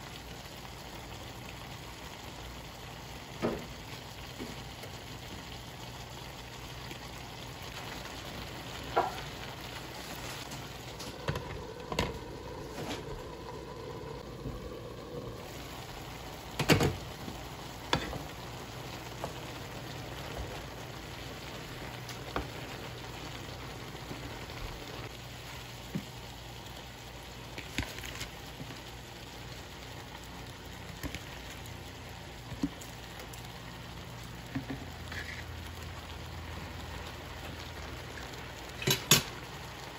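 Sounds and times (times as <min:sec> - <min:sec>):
vegetables sizzling in a frying pan: 0:00.0 - 0:39.9
leaves dropped into pan: 0:27.5 - 0:28.8, 0:38.7 - 0:39.4.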